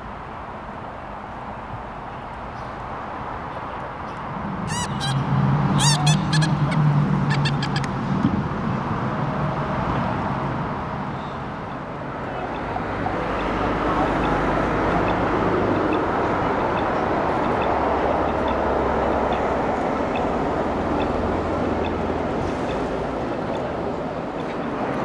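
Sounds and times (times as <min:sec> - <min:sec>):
city street traffic: 0:00.0 - 0:25.0
geese honking: 0:04.7 - 0:07.9.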